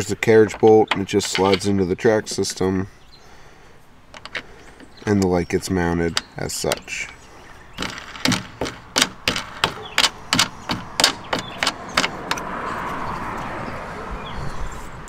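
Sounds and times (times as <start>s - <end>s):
sharp clicks and taps on metal rail: 7.8s - 12.5s.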